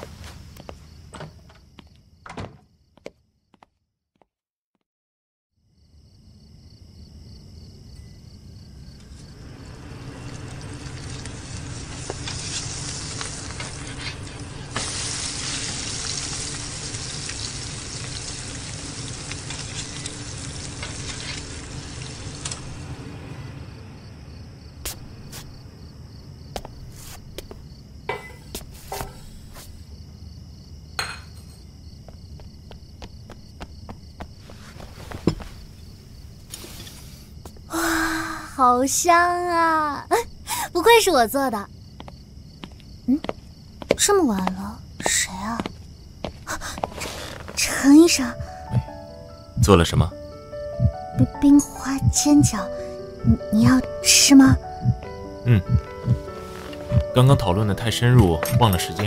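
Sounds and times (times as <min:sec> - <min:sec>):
food sizzling in a pan: 0:09.5 - 0:23.0.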